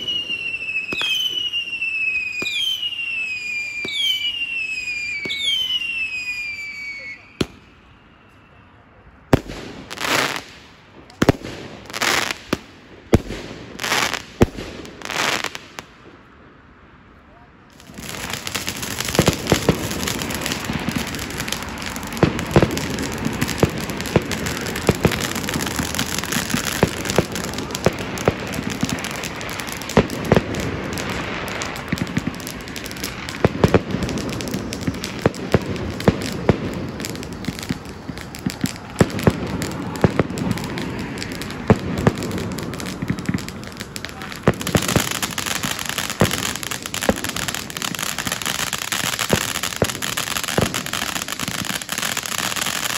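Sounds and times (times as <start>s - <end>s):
fireworks bangs: 0.0s - 16.4s, 17.7s - 52.9s
fireworks crackling: 0.0s - 16.6s, 17.6s - 52.9s.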